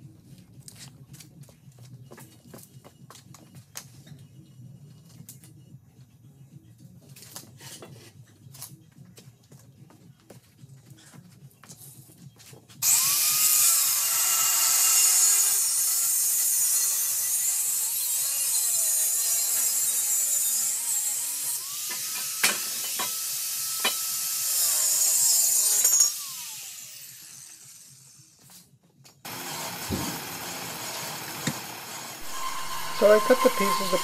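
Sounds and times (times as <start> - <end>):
angle grinder cutting steel: 12.8 - 28.2, 29.3 - 34.0.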